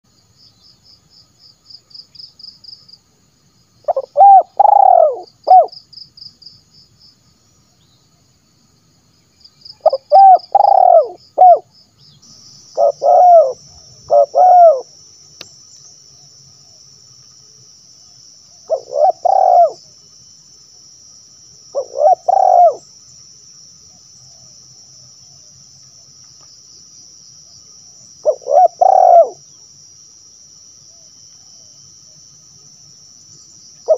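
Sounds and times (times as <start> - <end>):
dove cooing: 3.8 - 5.8, 9.8 - 11.7, 12.7 - 15.0, 18.7 - 19.9, 21.7 - 22.8, 28.2 - 29.4.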